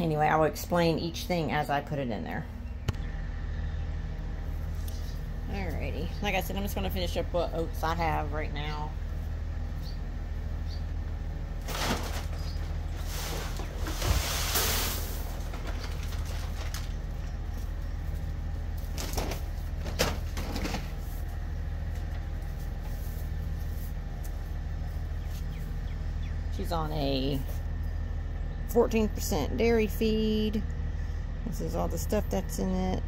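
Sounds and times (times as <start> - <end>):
steady low hum: 0.0 - 33.0
feed bag crinkling and rustling: 11.6 - 17.8.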